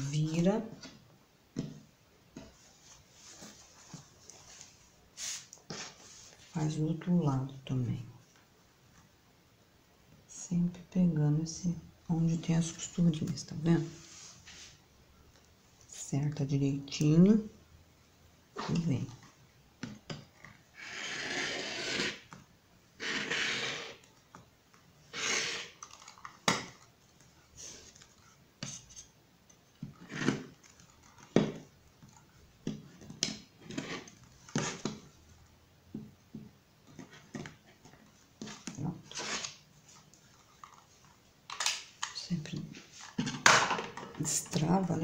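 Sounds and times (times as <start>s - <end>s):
rotary cutter slicing fabric: 20.8s - 22.2s, 23.0s - 24.0s.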